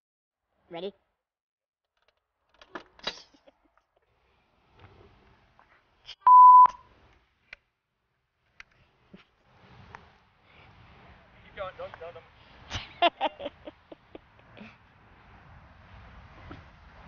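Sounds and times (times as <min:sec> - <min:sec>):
high electronic beep: 0:06.3 - 0:06.8.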